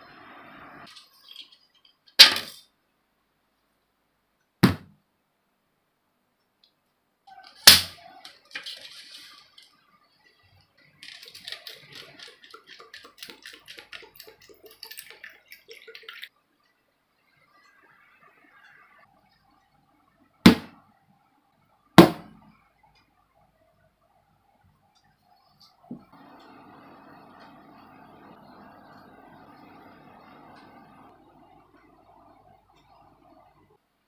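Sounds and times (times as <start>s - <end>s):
water pouring into plastic bowl: 10.9s - 16.3s.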